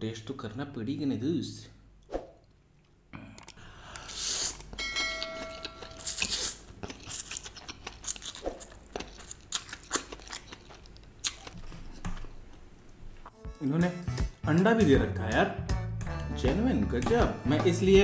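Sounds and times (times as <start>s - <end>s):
man slurping and chewing: 3.9s - 4.8s, 5.6s - 11.6s.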